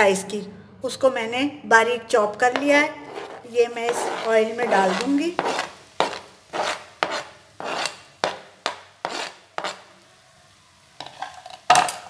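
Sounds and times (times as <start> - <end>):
scraping onion off chopping board: 3.0 - 9.9.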